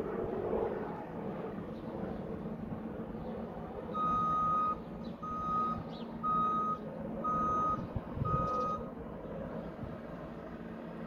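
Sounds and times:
low drone: 0.0 - 5.3
vehicle reversing alarm beeping: 3.9 - 8.9.

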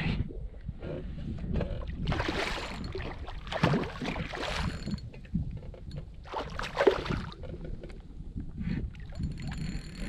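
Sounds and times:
fish thrashing and splashing: 2.1 - 5.0.

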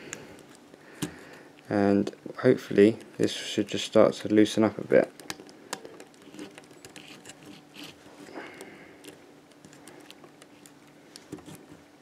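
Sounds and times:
plastic parts clicking and scraping: 5.1 - 11.8.

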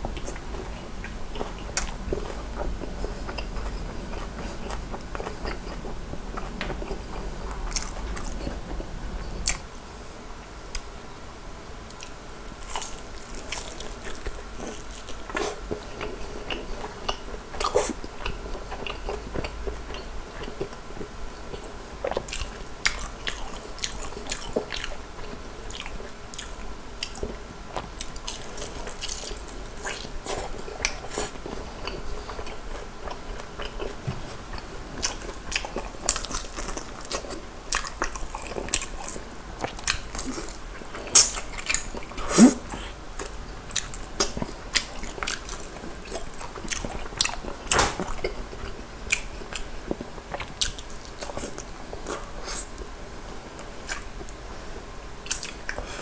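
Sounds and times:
crunchy chewing and biting: 11.9 - 52.8.

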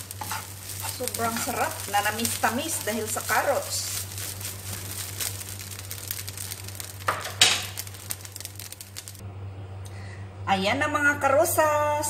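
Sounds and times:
spatula scraping pan: 0.0 - 6.6
frying sizzle: 0.0 - 9.2.

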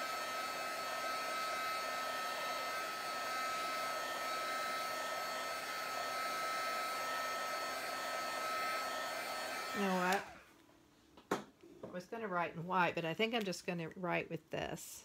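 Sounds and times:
heat tool blowing with high whine: 0.0 - 10.4.

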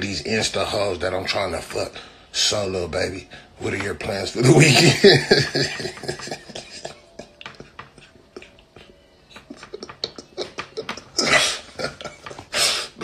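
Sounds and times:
man laughing: 4.4 - 13.0.

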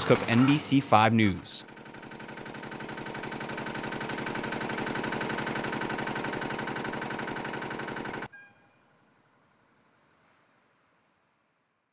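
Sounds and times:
heavy machine engine throbbing: 0.0 - 1.6.

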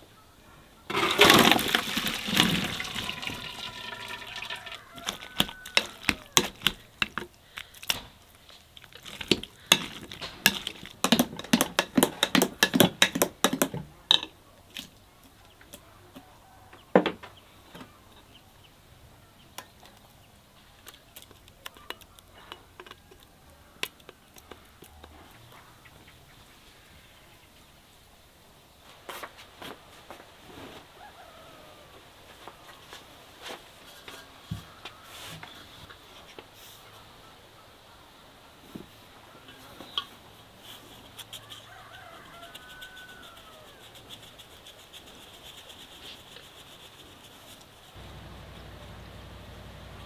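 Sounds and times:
hot liquid pouring and splashing: 0.9 - 7.1, 8.7 - 12.8.

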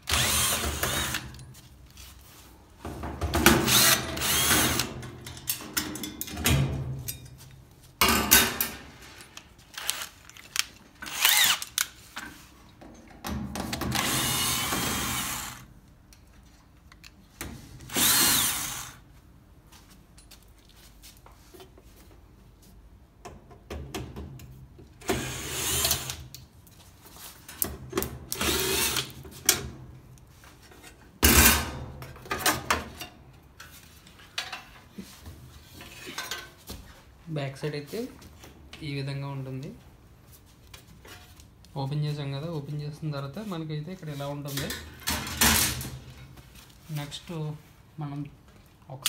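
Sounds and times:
cordless drill running: 0.0 - 1.3, 3.7 - 4.9, 9.8 - 10.1, 11.1 - 11.7, 14.0 - 15.7, 17.9 - 19.0, 25.2 - 26.1, 28.4 - 29.1.

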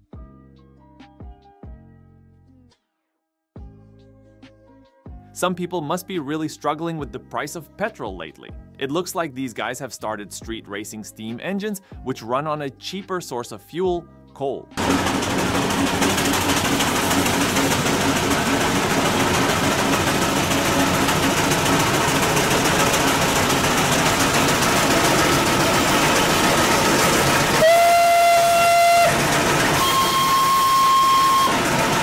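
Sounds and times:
steam traction engines running: 14.8 - 32.0
steam whistle blasts: 27.4 - 32.0.

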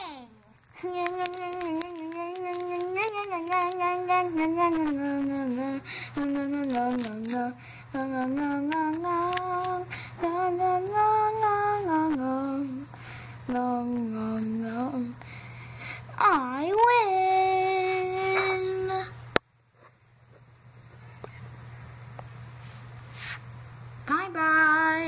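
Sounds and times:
child singing wordless tune: 0.0 - 12.8.

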